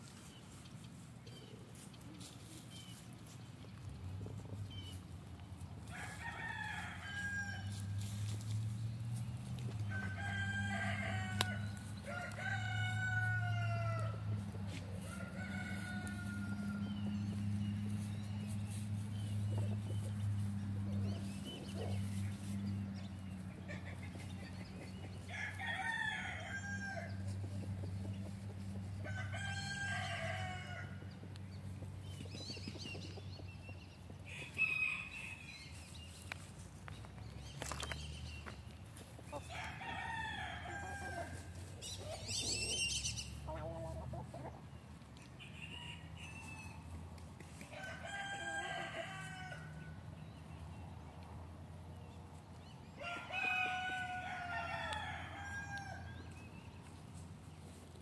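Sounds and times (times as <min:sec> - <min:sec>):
roosters crowing: 0:05.8 - 0:32.0, 0:34.1 - 0:36.0, 0:39.0 - 0:50.4, 0:52.8 - 0:57.8
hens clucking: 0:41.3 - 0:44.8.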